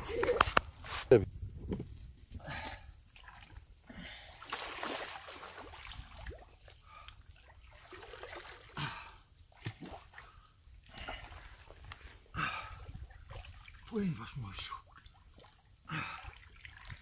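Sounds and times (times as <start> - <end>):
water splashing and trickling: 0.0 - 17.0.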